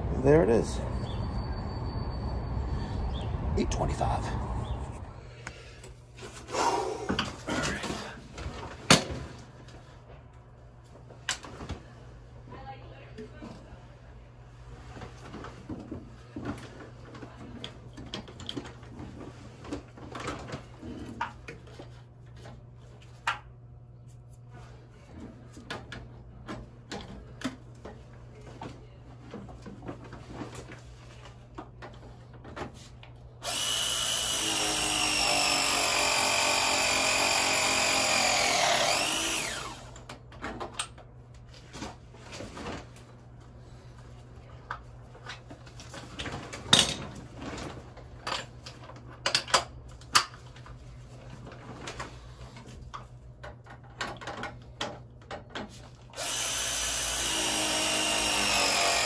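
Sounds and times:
power tool motor running: 33.4s - 40.0s, 56.2s - 59.0s.

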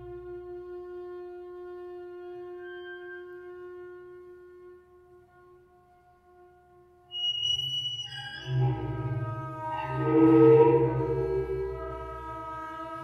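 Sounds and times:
rough bowed sound: 8.0s - 13.0s
double bass bowed note: 8.1s - 13.0s.

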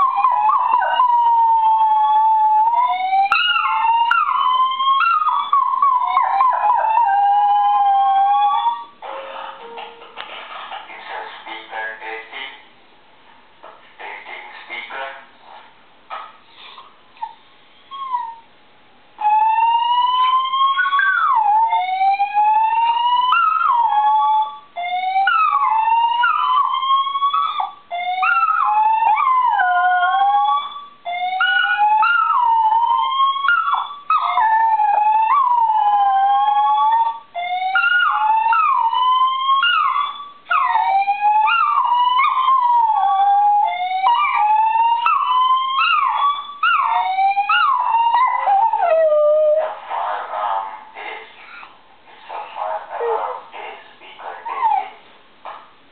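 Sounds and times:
dog howling: 0.0s - 9.0s, 19.2s - 49.8s.

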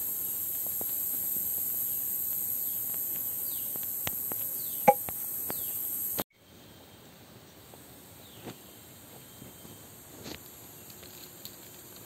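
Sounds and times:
high-pitched insect drone: 0.0s - 6.2s.

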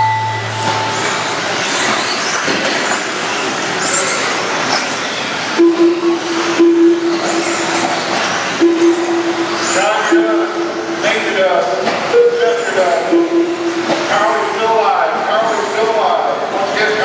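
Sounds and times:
rc buggies whirring: 0.9s - 5.5s.

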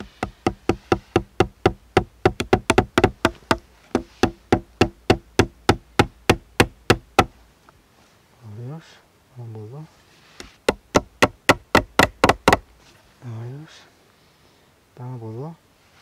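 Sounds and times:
axe head tapping green wood: 0.0s - 7.3s, 10.4s - 12.6s.

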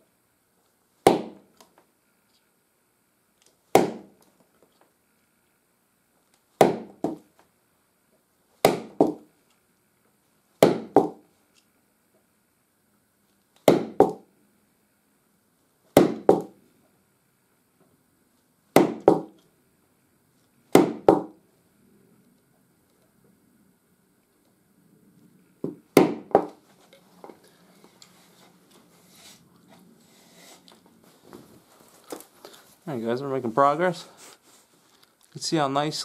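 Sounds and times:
mallet knocking awl through leather: 1.0s - 1.5s, 3.8s - 4.2s, 6.6s - 7.2s, 8.6s - 9.2s, 10.6s - 11.2s, 13.6s - 14.2s, 16.0s - 16.6s, 18.7s - 19.4s, 20.7s - 21.4s, 25.6s - 26.6s.

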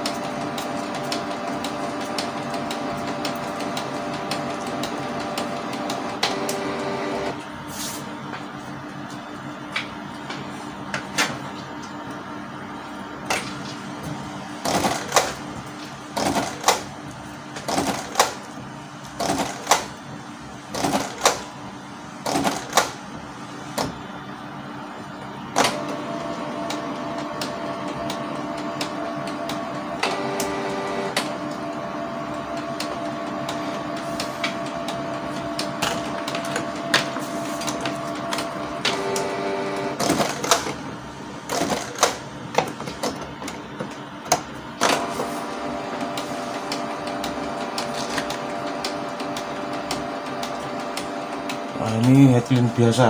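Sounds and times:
printer clicks and clunks: 0.0s - 7.4s, 14.6s - 15.4s, 17.6s - 18.4s, 19.1s - 20.0s, 20.7s - 21.5s, 22.2s - 23.1s, 25.5s - 40.8s, 41.5s - 52.8s
printer motor hum with whine: 0.0s - 53.0s.

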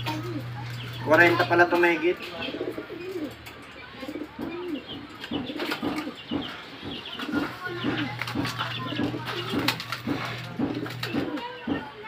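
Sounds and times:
pigeons cooing: 0.0s - 11.8s.

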